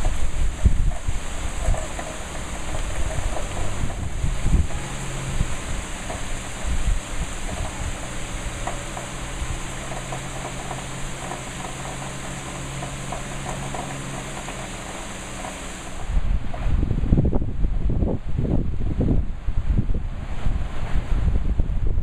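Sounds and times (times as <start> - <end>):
heavy rain hissing: 0.0 - 17.3
low steady hum: 0.0 - 22.0.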